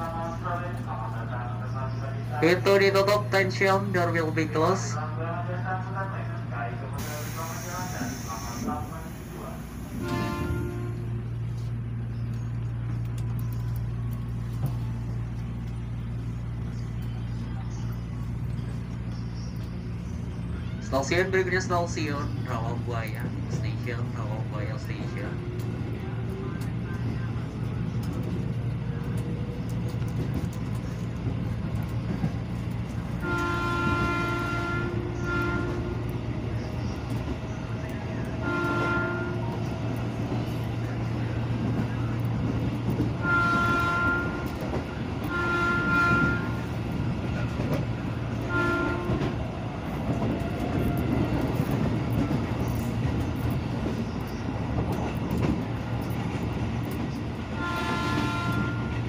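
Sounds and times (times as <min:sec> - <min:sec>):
electric train rumbling: 0:00.0 - 0:59.0
train horn blasts: 0:10.0 - 0:11.4, 0:33.2 - 0:36.1, 0:38.4 - 0:39.6, 0:43.2 - 0:46.8, 0:48.4 - 0:49.4, 0:57.5 - 0:59.0.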